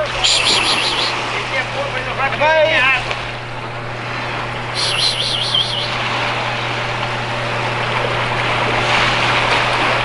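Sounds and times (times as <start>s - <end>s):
high warbling whistle: 0.2s - 1.2s, 4.8s - 6.0s
low engine hum: 3.2s - 10.0s
small waves washing on shore: 4.0s - 10.0s.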